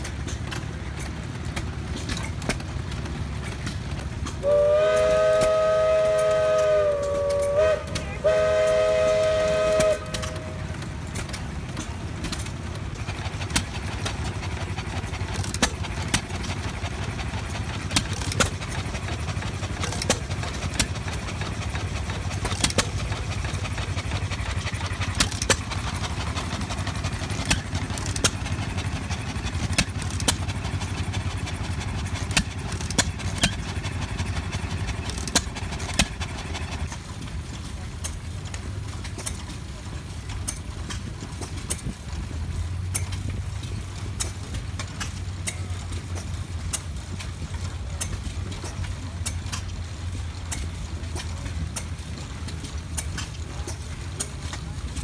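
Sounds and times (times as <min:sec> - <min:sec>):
stationary gas engines popping: 0:00.0 - 0:55.0
steam whistle chord: 0:04.4 - 0:10.7.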